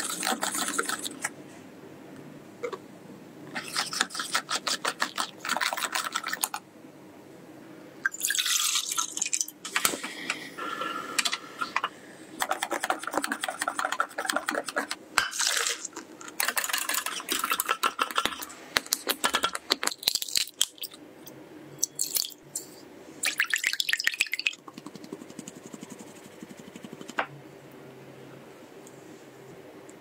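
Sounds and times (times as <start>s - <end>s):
whisk scraping glass bowl: 0.0s - 1.3s, 12.4s - 15.0s, 16.4s - 18.5s
liquid pouring: 8.0s - 9.5s, 23.2s - 24.6s
eggs cracking: 12.4s - 21.0s, 21.8s - 22.4s.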